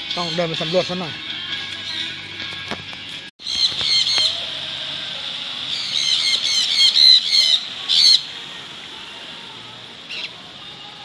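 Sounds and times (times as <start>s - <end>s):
parrots squawking: 3.4s - 4.4s, 5.7s - 8.3s.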